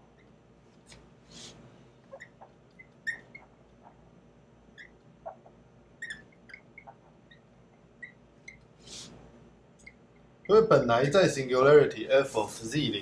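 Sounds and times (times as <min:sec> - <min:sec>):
marker squeaking on whiteboard: 0:00.0 - 0:04.1, 0:04.7 - 0:09.2, 0:09.8 - 0:10.6.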